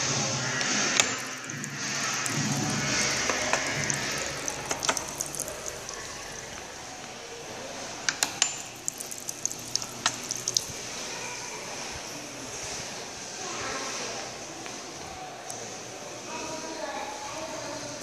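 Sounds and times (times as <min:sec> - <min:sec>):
water drips and splashes: 0:00.0 - 0:11.9
water running in urinal: 0:00.0 - 0:12.7.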